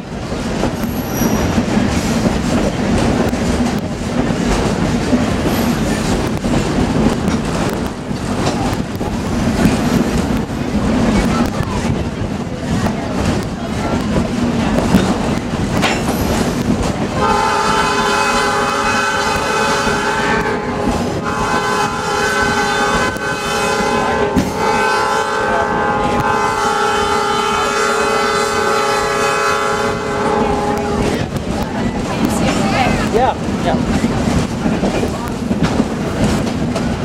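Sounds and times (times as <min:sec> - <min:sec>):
train car rumbling on rails: 0:00.0 - 0:37.0
locomotive air horn blasts: 0:17.2 - 0:31.2.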